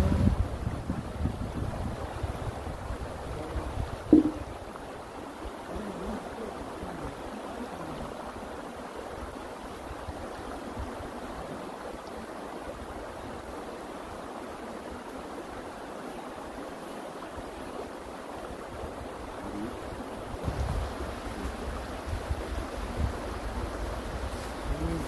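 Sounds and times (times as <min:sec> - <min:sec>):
wind buffeting microphone: 0:00.0 - 0:04.8, 0:19.5 - 0:25.0
mountain stream flowing: 0:00.0 - 0:25.0
loud knock: 0:04.1 - 0:04.4.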